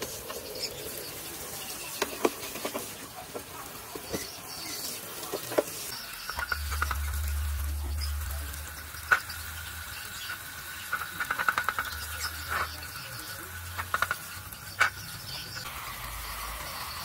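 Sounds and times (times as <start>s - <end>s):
pressure washer jet hissing: 0.0s - 17.0s
steady high whine: 6.0s - 12.3s.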